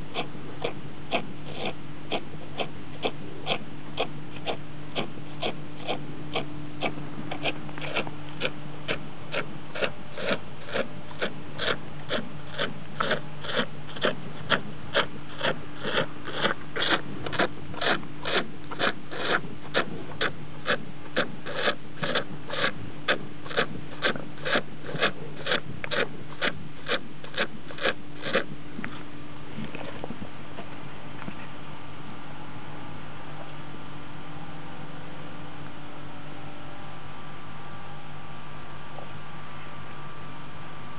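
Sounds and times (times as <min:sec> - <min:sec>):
cow sucking milk: 0:00.0 - 0:30.7
low electrical hum: 0:00.0 - 0:40.9.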